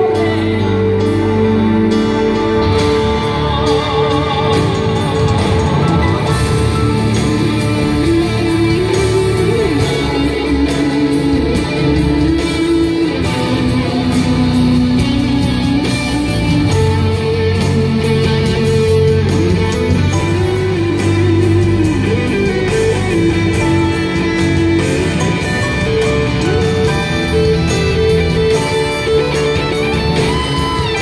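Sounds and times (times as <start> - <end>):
bass guitar: 0.0 - 31.0
bending guitar melody line: 0.0 - 31.0
strummed guitar chords: 0.0 - 31.0.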